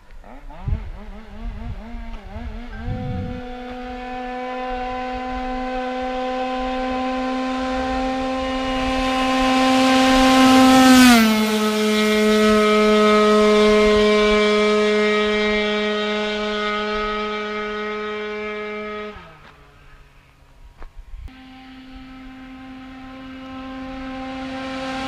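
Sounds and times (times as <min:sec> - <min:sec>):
moped engine passing at full throttle: 0:00.0 - 0:20.4, 0:21.3 - 0:25.0.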